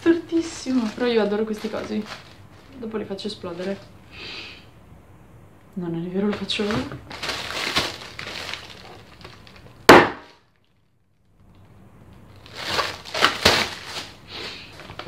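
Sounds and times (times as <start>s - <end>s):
plastic packing pillows crinkling: 0.0s - 4.0s, 6.2s - 11.5s, 12.2s - 15.0s
sharp loud snap: 9.9s - 10.3s.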